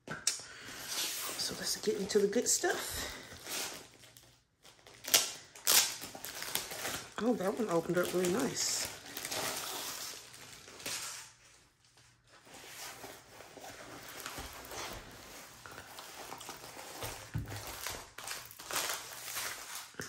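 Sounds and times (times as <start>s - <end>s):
canvas and plastic crinkling: 0.7s - 20.0s.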